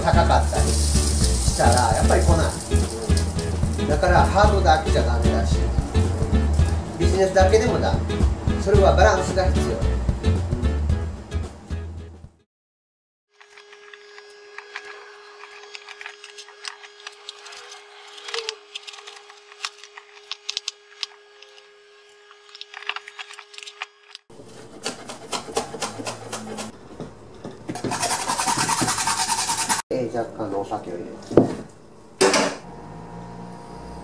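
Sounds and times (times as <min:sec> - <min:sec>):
loud hiss: 0:00.0 - 0:04.3
cabbage rustling and knocking: 0:00.2 - 0:04.0
knife chopping on cutting board: 0:24.5 - 0:26.7.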